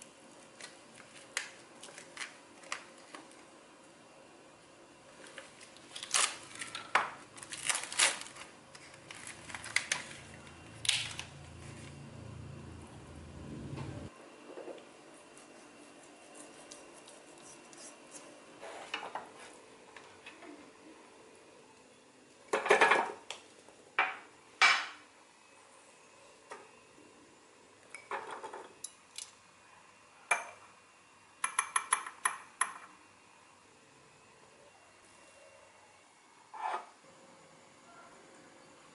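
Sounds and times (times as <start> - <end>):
plastic film crinkling: 5.2 - 12.0.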